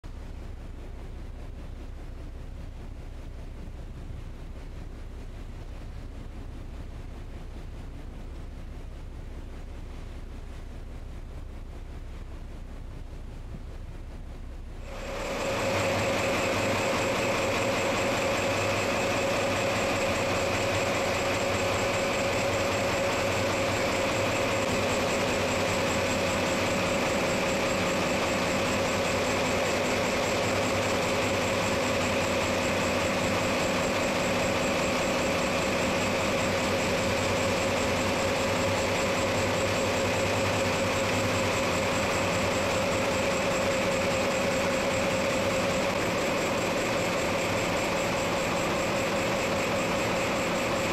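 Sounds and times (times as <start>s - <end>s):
ship diesel engine drone: 0.1s - 50.9s.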